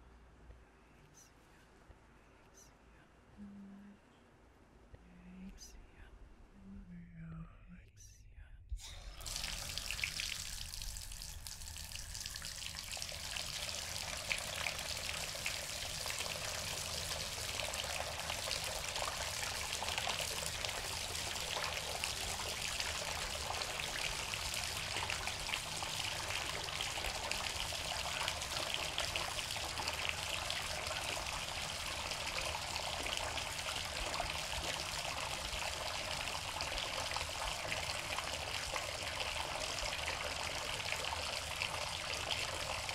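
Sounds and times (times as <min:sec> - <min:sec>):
water running from faucet: 0:08.8 - 0:42.9.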